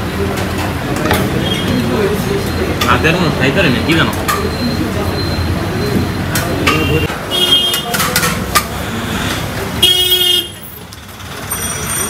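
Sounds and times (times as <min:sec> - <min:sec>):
busy street traffic: 0:00.0 - 0:12.0
vehicle horn blasts: 0:06.7 - 0:07.9, 0:09.8 - 0:10.6.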